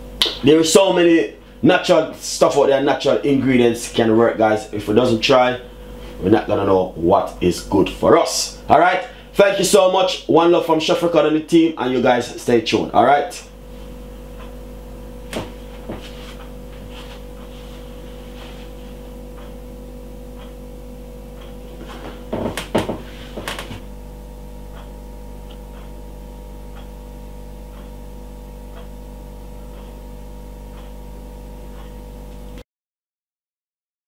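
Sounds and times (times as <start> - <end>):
electrical hum: 0.0 - 32.6
faint regular ticks: 14.3 - 14.7, 18.4 - 19.6, 20.3 - 20.6, 21.2 - 22.7, 24.7 - 28.0, 28.6 - 32.4
knocks and clicks: 15.3 - 16.6, 21.4 - 23.9.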